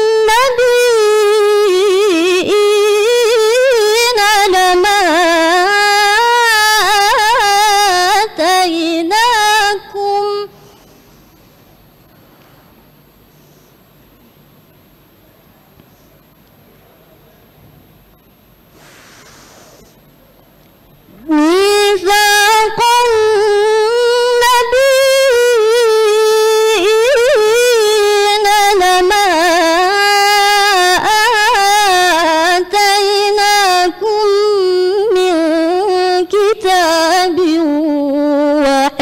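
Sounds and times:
girl chanting recitation: 0.0 - 10.7, 21.2 - 39.0.

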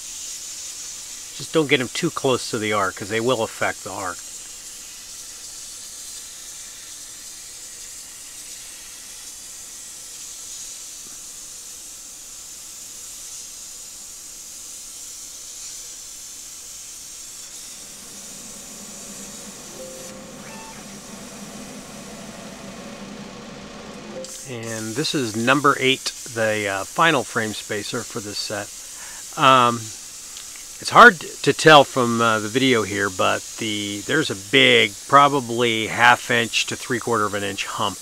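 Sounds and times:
low hum: 17.5 - 25.5
faint steady tones: 17.6 - 26.0.

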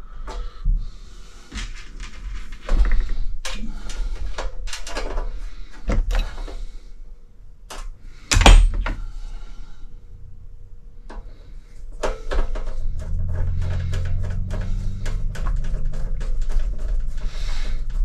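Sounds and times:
hand tools clicking and knocking: 7.7 - 9.0.

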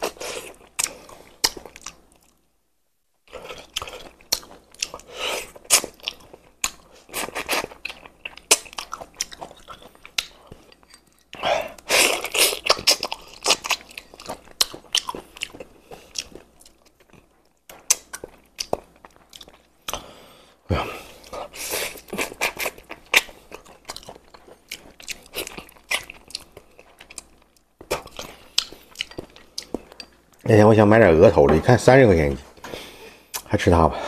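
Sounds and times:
wet sucking and chewing: 3.3 - 20.1, 21.1 - 30.2.

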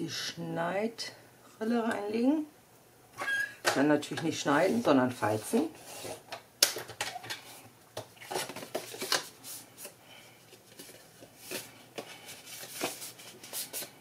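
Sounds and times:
card rustling and tapping: 8.0 - 9.9.

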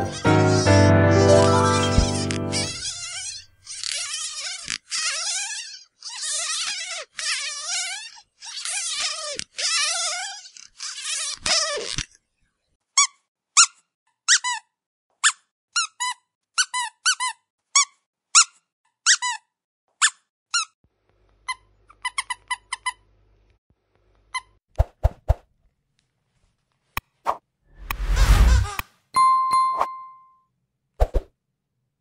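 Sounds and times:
dog squeaky toy squeaking: 0.0 - 11.9, 13.0 - 14.6, 15.2 - 19.4.

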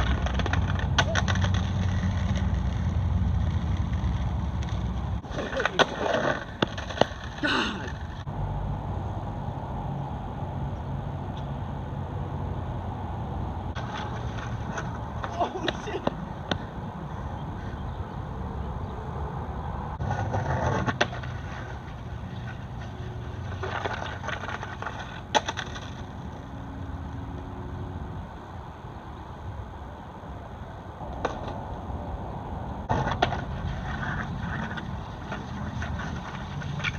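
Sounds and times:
skateboard clacks: 0.0 - 8.3, 13.8 - 16.8, 20.0 - 26.5, 31.1 - 31.6, 32.9 - 36.9
skateboard scraping and rolling: 0.0 - 8.6, 13.2 - 28.4, 30.0 - 36.9.

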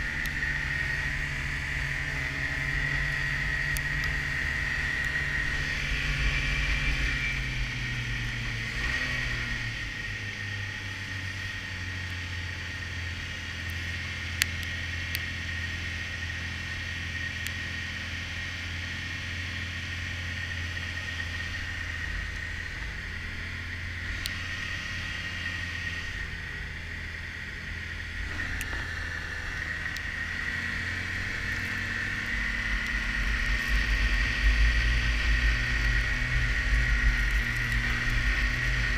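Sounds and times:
snowmobile engine whine: 0.0 - 38.9.

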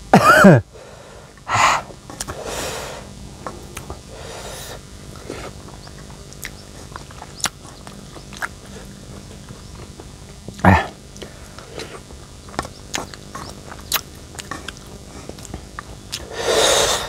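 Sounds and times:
mouth clicks: 5.2 - 8.7, 10.6 - 17.0
hissing breaths through mouth: 16.2 - 17.0.

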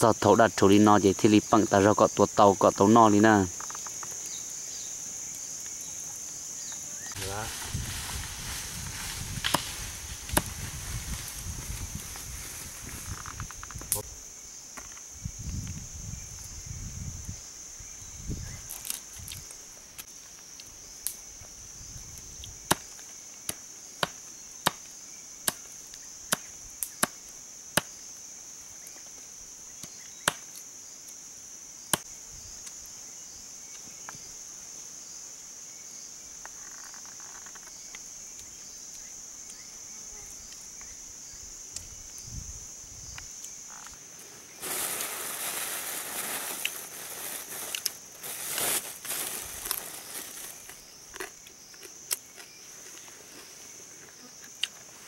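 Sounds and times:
insects buzzing: 0.0 - 55.0
rustling noise: 7.1 - 14.0, 43.7 - 50.9.

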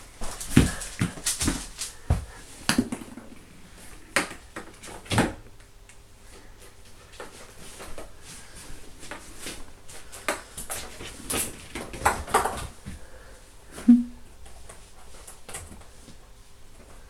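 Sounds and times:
knocks and thumps on foam mats: 0.5 - 3.2.

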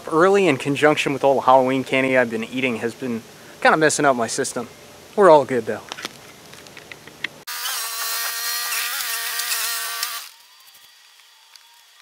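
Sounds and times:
machine motor whining: 7.5 - 12.0.

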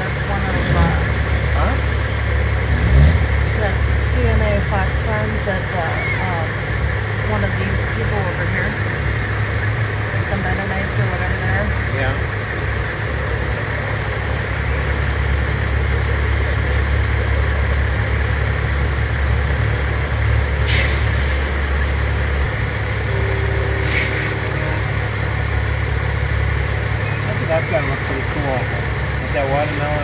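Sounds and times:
truck diesel engines rumbling: 0.0 - 30.0
air brake hisses: 20.6 - 21.6, 23.7 - 24.4.

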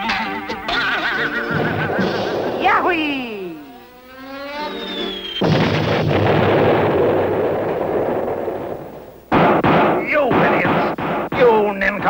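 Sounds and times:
cartoon whistling glide: 1.4 - 5.5
cartoon cannonball explosion: 1.5 - 4.3, 5.2 - 11.5.

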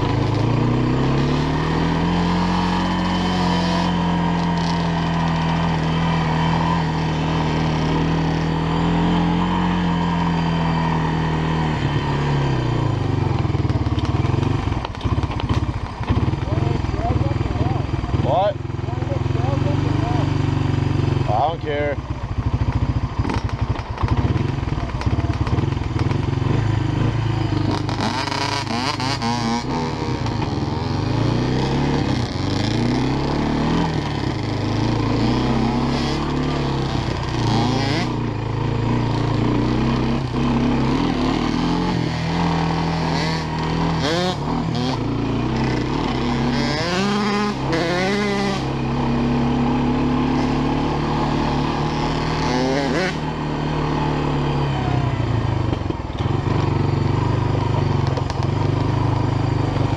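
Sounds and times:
higher-pitched engine revving: 0.0 - 13.2, 26.8 - 38.4, 39.0 - 55.6
atv engine revving: 0.0 - 59.9.

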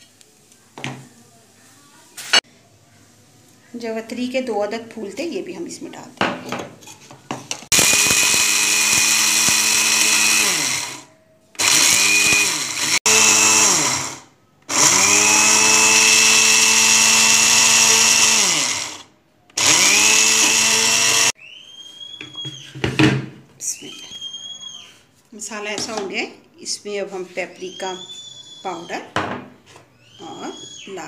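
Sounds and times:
electric spice grinder motor: 7.7 - 21.4.

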